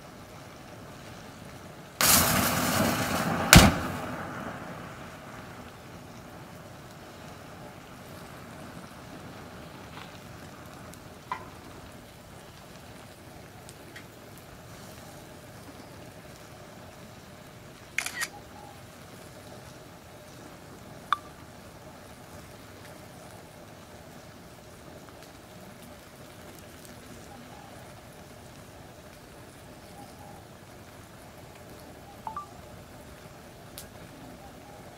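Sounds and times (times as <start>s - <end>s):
open fire hissing: 0.0s - 34.9s
fire pops and cracks: 2.0s - 18.5s, 22.0s - 29.9s, 33.2s - 34.2s.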